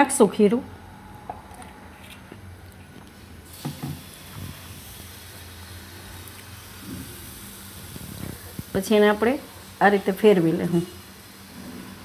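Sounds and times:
batter sizzling on hot pan: 0:03.4 - 0:12.0.

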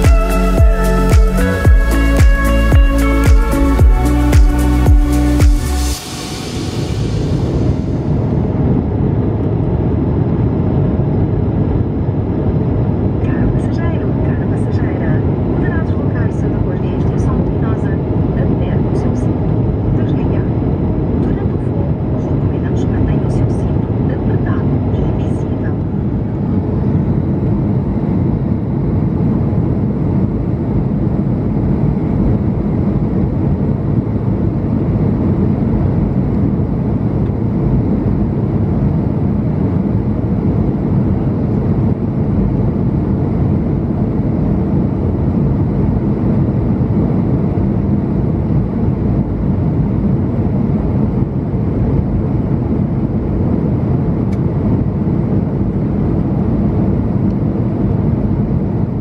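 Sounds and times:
air rushing over fuselage: 0:00.0 - 0:13.4
airliner cabin engine drone: 0:00.0 - 0:59.0.

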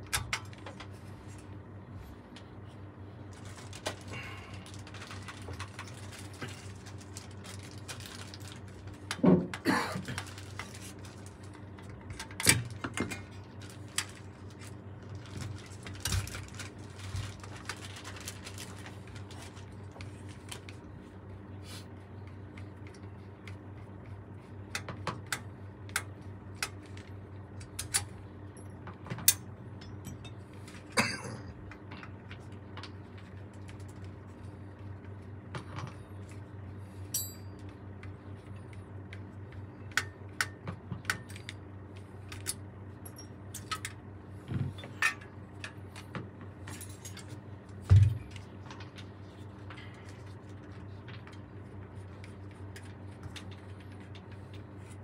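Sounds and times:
steady low hum: 0:00.0 - 0:55.0.

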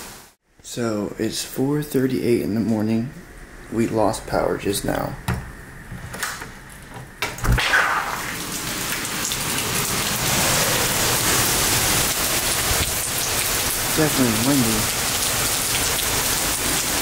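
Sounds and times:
heavy rain downpour: 0:07.6 - 0:17.0.

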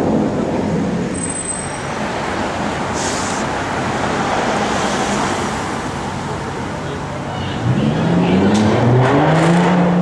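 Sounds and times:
car engines idling: 0:00.0 - 0:09.0
road rumble: 0:00.0 - 0:10.0
short hiss: 0:02.9 - 0:03.5.

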